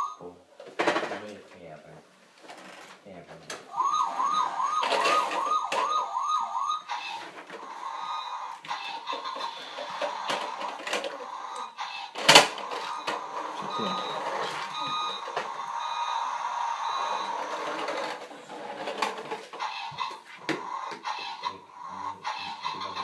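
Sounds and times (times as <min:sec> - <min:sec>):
toy electronic beeps: 0:03.7 - 0:10.7, 0:12.6 - 0:18.2
toy knock: 0:03.8 - 0:06.4.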